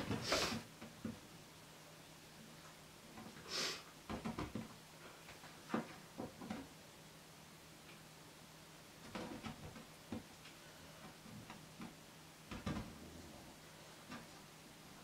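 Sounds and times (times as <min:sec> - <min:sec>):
short hiss: 0:03.4 - 0:03.9.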